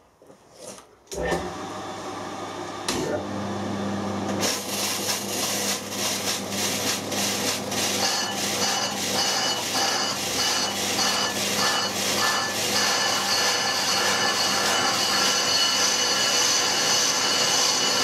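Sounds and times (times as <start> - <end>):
lathe tool scraping metal drum: 4.4 - 18.0.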